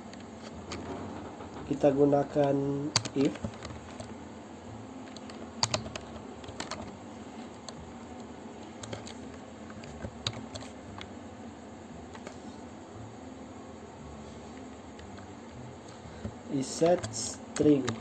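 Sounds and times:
faint background noise: 0:00.0 - 0:18.0
computer keyboard typing: 0:01.5 - 0:04.2, 0:05.0 - 0:11.1, 0:12.1 - 0:12.4, 0:16.2 - 0:18.0.

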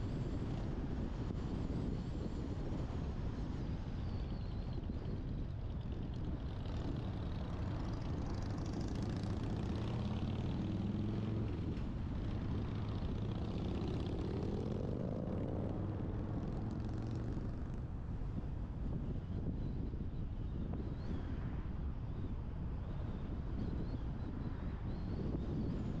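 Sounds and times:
road rumble: 0:06.5 - 0:19.3
vehicle engine accelerating: 0:08.3 - 0:17.8.

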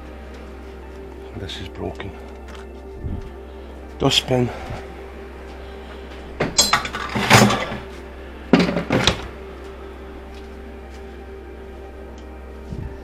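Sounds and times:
junk clattering into a bin: 0:06.4 - 0:07.9, 0:08.5 - 0:09.3.

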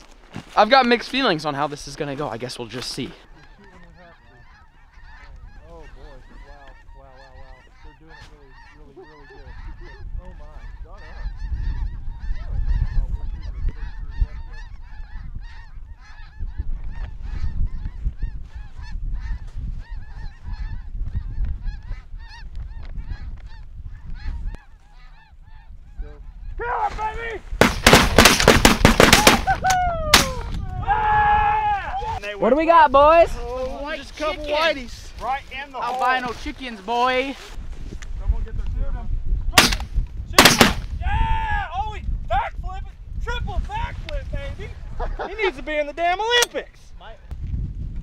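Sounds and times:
geese calling: 0:00.0 - 0:27.0, 0:31.9 - 0:37.6
wind rumbling on microphone: 0:03.3 - 0:48.0
shotgun blasts: 0:27.6 - 0:30.4, 0:39.6 - 0:40.9.

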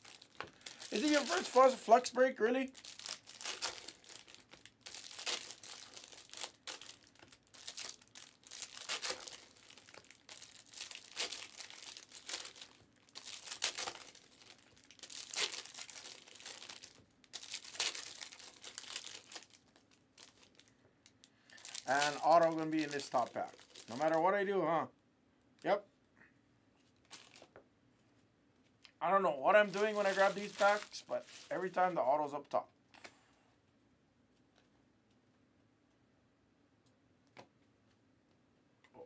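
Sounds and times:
card packs torn open: 0:00.0 - 0:02.1, 0:02.7 - 0:20.6, 0:21.5 - 0:24.2, 0:27.1 - 0:27.5, 0:29.6 - 0:31.8
foil wrappers crinkling: 0:00.0 - 0:20.7, 0:21.5 - 0:24.3, 0:27.0 - 0:27.5, 0:29.5 - 0:32.0.

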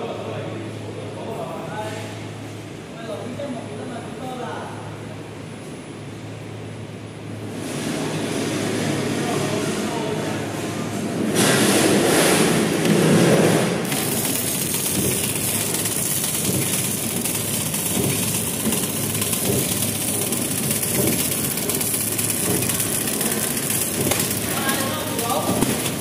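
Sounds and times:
packing machine clatter: 0:11.3 - 0:26.0.

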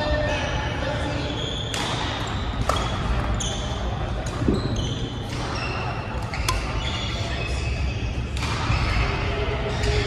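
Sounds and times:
shoes squeaking on court floor: 0:00.2 - 0:08.9
shuttlecock hit: 0:06.4 - 0:06.8.

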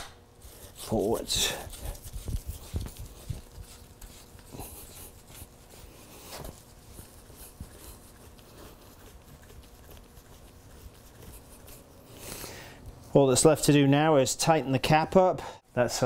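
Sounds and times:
rag rustling: 0:00.5 - 0:12.0.

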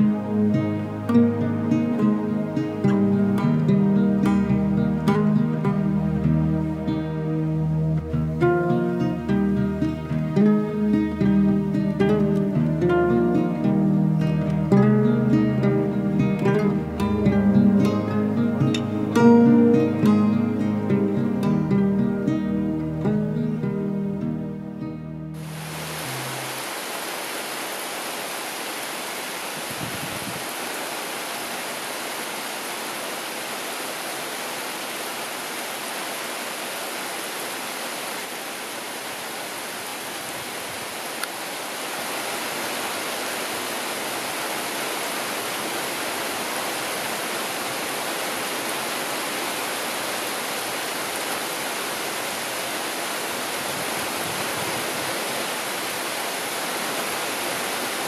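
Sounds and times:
heavy rain pouring: 0:25.3 - 0:58.0.

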